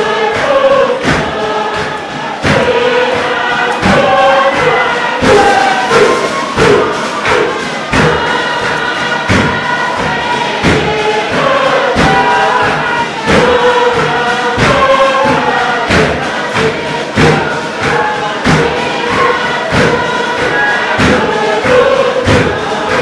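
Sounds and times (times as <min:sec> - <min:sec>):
group singing in chorus: 0:00.0 - 0:23.0.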